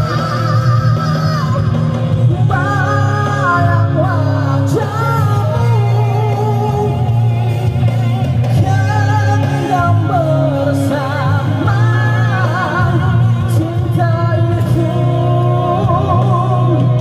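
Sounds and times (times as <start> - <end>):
instrumental backing music: 0.0 - 17.0
man singing with vibrato: 0.0 - 17.0.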